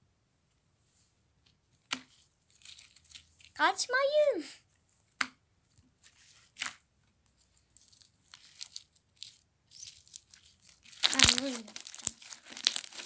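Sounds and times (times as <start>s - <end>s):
slime crackling: 7.7s - 13.0s.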